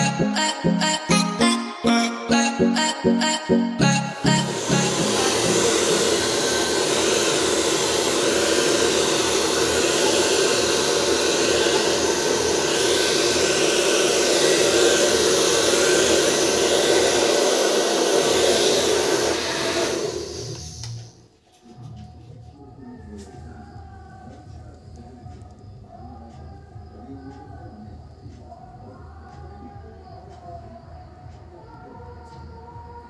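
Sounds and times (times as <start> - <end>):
hair dryer blowing: 2.8 - 21.2.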